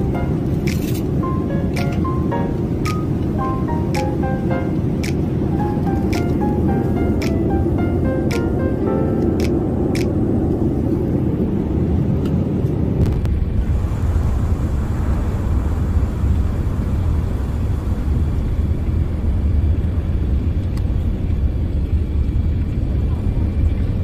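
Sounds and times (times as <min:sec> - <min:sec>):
air rushing past cabin: 0:00.0 - 0:20.6
jet engines rumbling: 0:00.0 - 0:24.0
higher hiss of airflow: 0:13.6 - 0:18.6.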